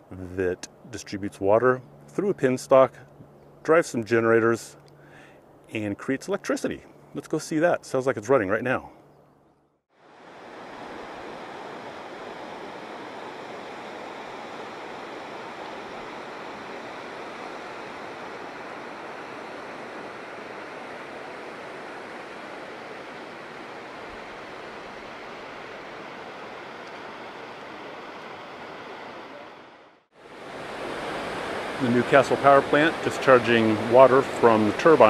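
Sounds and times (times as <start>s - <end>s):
water rushing over rocks: 30.2s - 35.0s.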